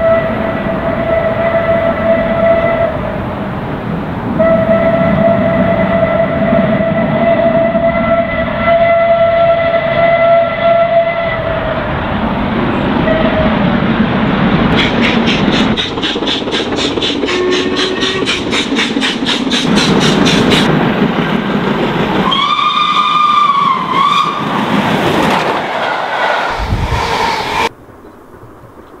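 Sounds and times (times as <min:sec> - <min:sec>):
steam locomotive whistle: 0:00.0 - 0:03.3, 0:04.4 - 0:11.8, 0:13.0 - 0:13.6, 0:14.8 - 0:20.7, 0:22.2 - 0:24.6.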